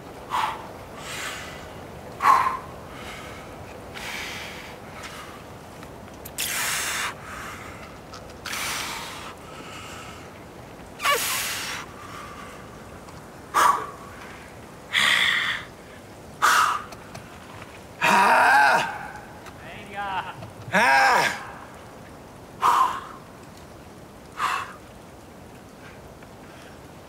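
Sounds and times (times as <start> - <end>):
forceful hissing exhalations: 2.2 - 5.4, 6.4 - 10.3, 11.0 - 12.7, 13.5 - 16.9
person grunting: 18.0 - 19.2, 20.2 - 21.5.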